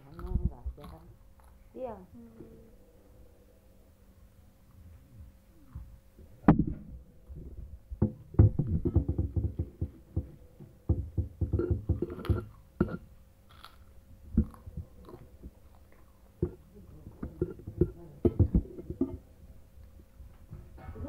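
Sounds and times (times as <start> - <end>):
child chewing: 0.0 - 1.7, 11.6 - 20.0
metal spoon knocking ceramic bowl: 10.9 - 13.0.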